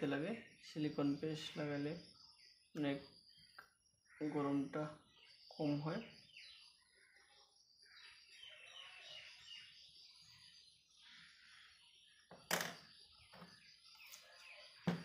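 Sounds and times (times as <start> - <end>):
faint bird chirping: 0.0 - 15.0
knocks of small parts on table: 12.3 - 12.8.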